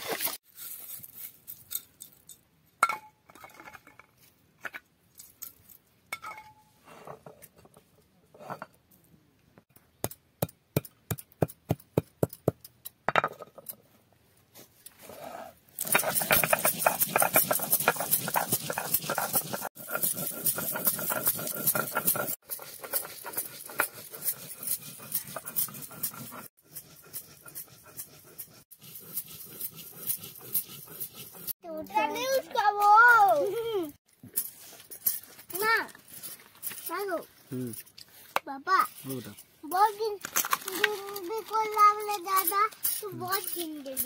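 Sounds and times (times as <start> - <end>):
stone grinding on stone: 15.0 - 31.6
stone roller knocking seeds: 15.8 - 31.5.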